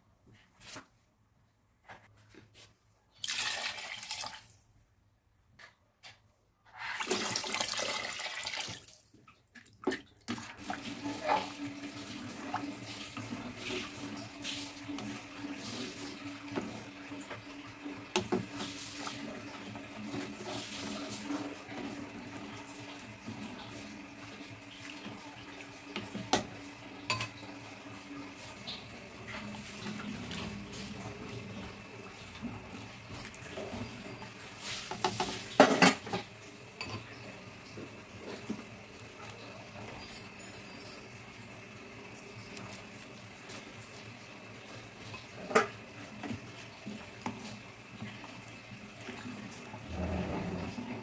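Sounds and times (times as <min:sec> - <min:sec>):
liquid sloshing in a pot: 0:06.7 - 0:37.1.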